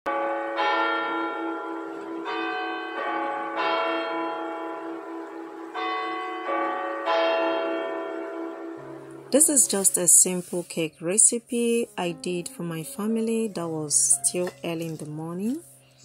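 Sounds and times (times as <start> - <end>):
church bells ringing: 0.1 - 10.5.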